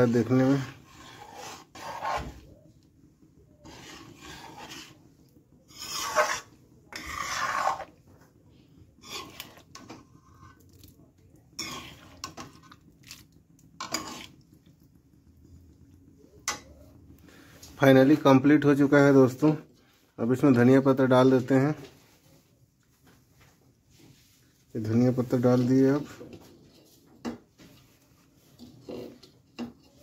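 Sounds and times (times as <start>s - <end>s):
metal spoon scraping a pot: 0.0s - 2.6s, 3.5s - 8.1s, 8.9s - 12.9s, 13.8s - 14.5s, 24.8s - 30.0s.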